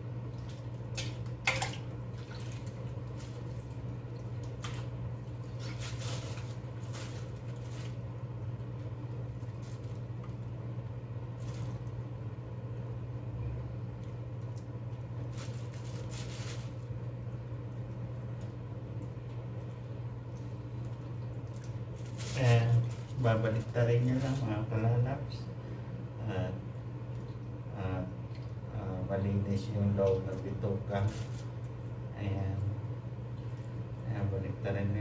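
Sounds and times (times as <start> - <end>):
steady low hum: 0.0 - 35.0
wet squishing of intestine: 17.7 - 23.1.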